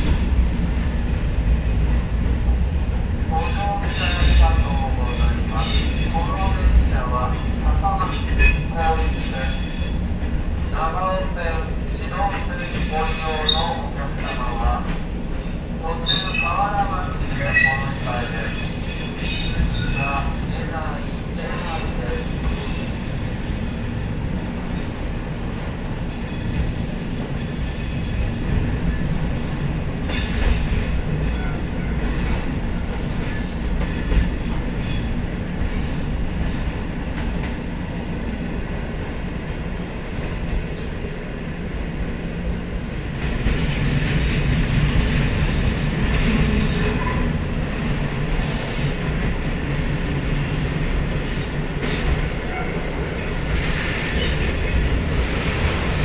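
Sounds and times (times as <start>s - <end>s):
train wheels rumbling on rail: 0.0s - 56.0s
clicks of train wheels: 29.2s - 36.0s, 51.2s - 56.0s.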